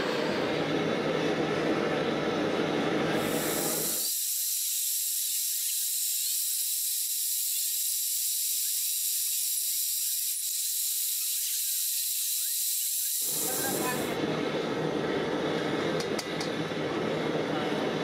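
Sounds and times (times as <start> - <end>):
high-pitched hiss: 3.2 - 14.2.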